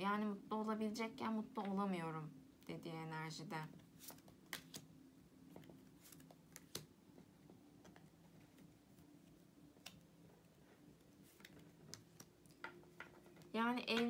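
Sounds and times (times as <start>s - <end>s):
faint steady hum: 0.0s - 14.0s
cards clicking on table: 4.0s - 4.9s, 6.1s - 6.9s.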